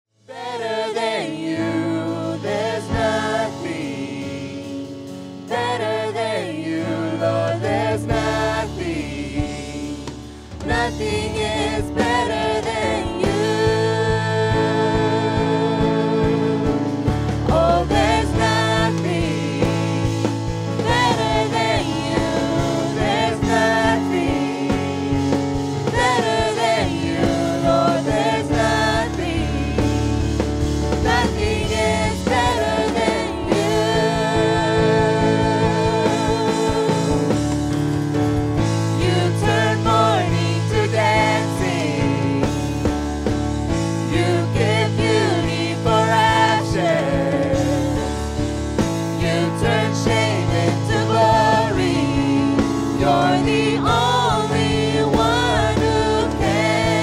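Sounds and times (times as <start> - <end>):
worship music with singing and band: 0.2 - 57.0.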